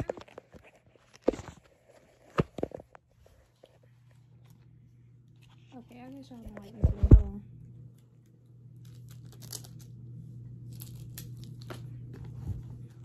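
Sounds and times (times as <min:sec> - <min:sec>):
steady low hum: 0:00.0 - 0:13.0
paper packaging crinkling and tearing: 0:08.8 - 0:13.0.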